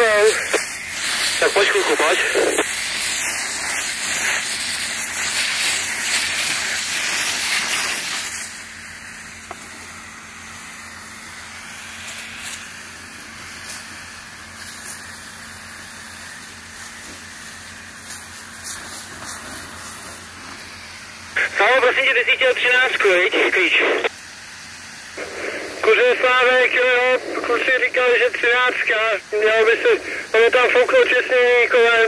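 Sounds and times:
hose nozzle spraying water: 0.3 - 1.8, 2.6 - 8.6, 13.3 - 15.3, 16.7 - 20.7.

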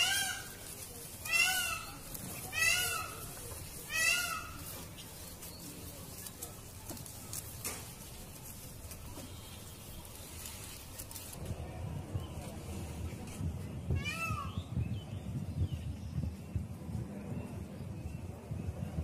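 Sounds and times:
peafowl wailing calls: 0.0 - 4.9.

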